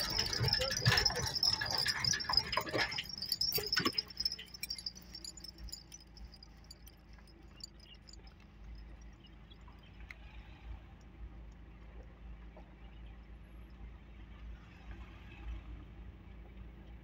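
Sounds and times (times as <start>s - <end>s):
faint high insect trill: 0.0s - 9.9s
low uneven rumble: 0.0s - 10.2s.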